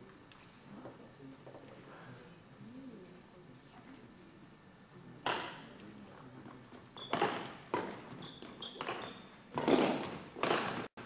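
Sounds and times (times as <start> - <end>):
shoes squeaking on wooden court: 6.7 - 10.9
racket hitting shuttlecock: 7.1 - 8.1, 8.8 - 10.9.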